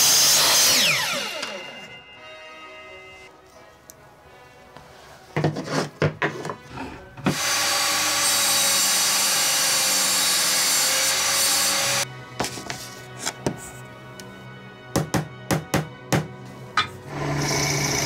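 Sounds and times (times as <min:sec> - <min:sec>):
table saw cutting wood: 0:00.0 - 0:03.2, 0:05.5 - 0:12.0, 0:16.8 - 0:18.0.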